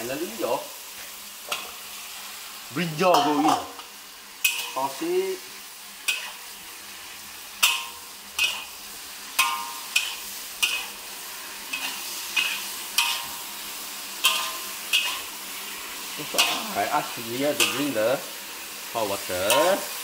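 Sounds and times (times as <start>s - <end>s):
food sizzling in oil: 0.0s - 20.0s
metal spatula clanking on wok: 3.1s - 4.9s, 6.1s - 6.4s, 7.6s - 8.8s, 9.4s - 11.0s, 11.7s - 13.5s, 14.2s - 15.3s, 16.3s - 16.8s, 17.6s - 18.0s, 19.4s - 19.8s.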